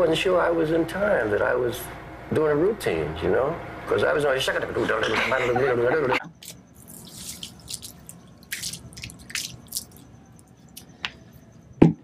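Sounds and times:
water splashing on concrete: 6.8 - 10.1.

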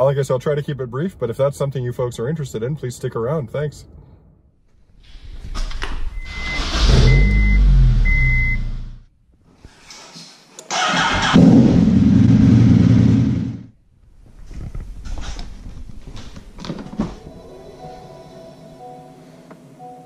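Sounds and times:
high electronic beep: 6.2 - 8.8
car engine starting and revving: 6.2 - 9.0, 10.7 - 13.7.

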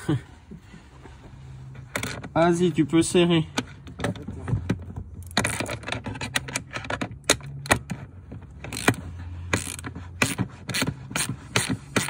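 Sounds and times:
ratchet wrench clicking: 8.7 - 12.0.

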